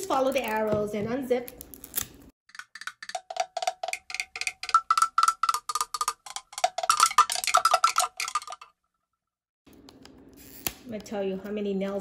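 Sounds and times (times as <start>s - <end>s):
zip strip tearing with clicks: 10.3s - 10.9s.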